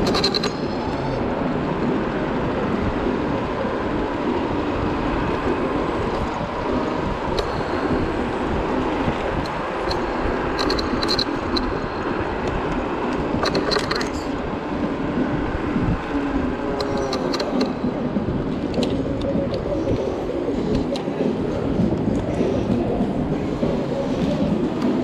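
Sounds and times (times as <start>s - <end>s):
road rumble: 0.0s - 25.0s
wind buffeting: 0.0s - 25.0s
sharp high ticks: 7.3s - 14.4s.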